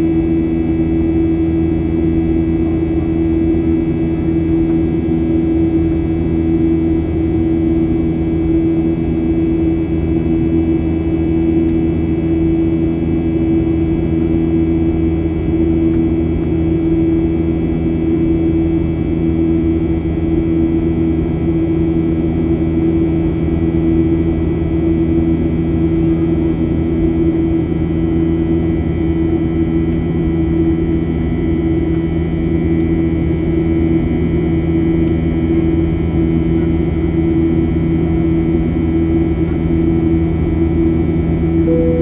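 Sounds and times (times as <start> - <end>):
aircraft cabin engine drone: 0.0 - 42.0
thin steady whine: 37.4 - 42.0.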